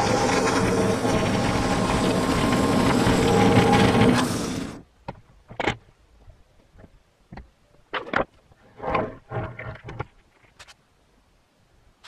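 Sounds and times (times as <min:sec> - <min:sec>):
band sawmill sawing log: 0:00.0 - 0:04.8.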